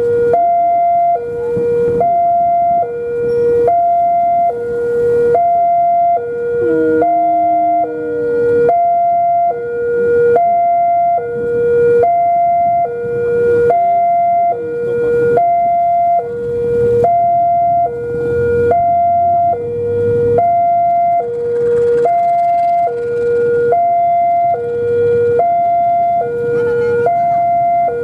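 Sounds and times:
two-tone electronic alarm: 0:00.0 - 0:28.0.

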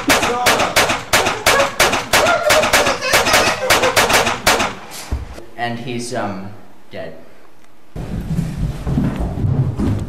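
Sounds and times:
handgun shots: 0:00.0 - 0:05.1.

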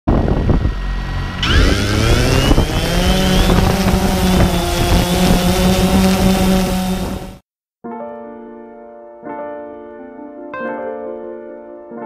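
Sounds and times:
drone motors whining: 0:00.1 - 0:07.4
wind on microphone: 0:00.1 - 0:07.4.

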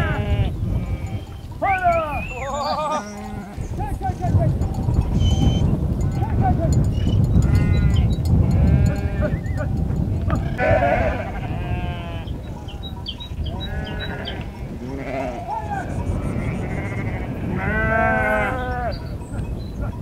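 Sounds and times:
sheep bleating: 0:00.0 - 0:03.8, 0:07.4 - 0:09.6, 0:10.3 - 0:12.8, 0:13.5 - 0:19.1.

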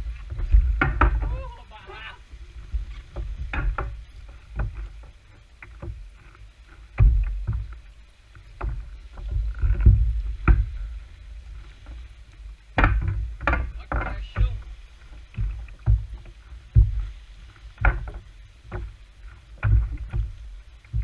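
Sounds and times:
water splashing against kayak: 0:00.0 - 0:21.0
knocks on plastic hull: 0:00.3 - 0:01.4, 0:12.7 - 0:14.7, 0:15.3 - 0:17.1.

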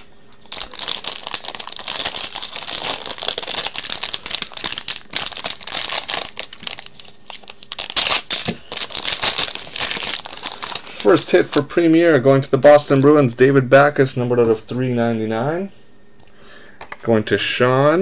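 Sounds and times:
plastic wrapping crinkling and tearing: 0:00.4 - 0:11.6.

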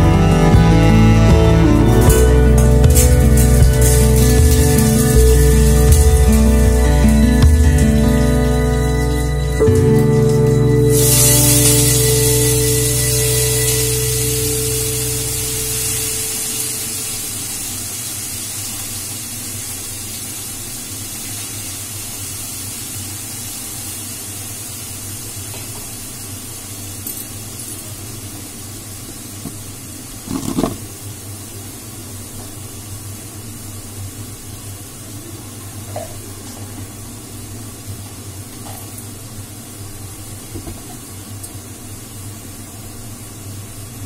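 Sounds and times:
low steady hum: 0:00.0 - 0:17.9
food sizzling in a pan: 0:01.2 - 0:44.0.

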